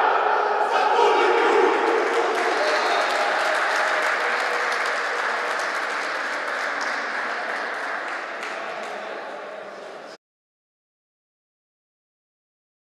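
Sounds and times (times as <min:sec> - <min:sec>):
applause in a sports hall: 0:01.2 - 0:10.2.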